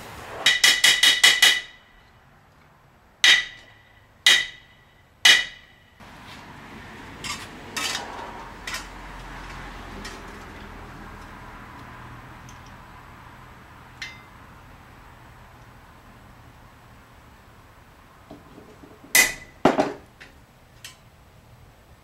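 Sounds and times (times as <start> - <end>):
hammer striking sheet steel: 0.0 - 2.0, 3.2 - 6.0, 14.0 - 14.3, 19.1 - 20.0.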